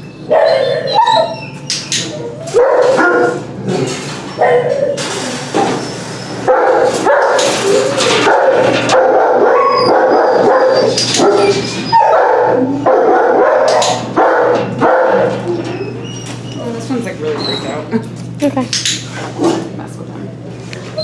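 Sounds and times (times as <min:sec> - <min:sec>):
dogs barking and yipping: 0:00.0 - 0:16.5.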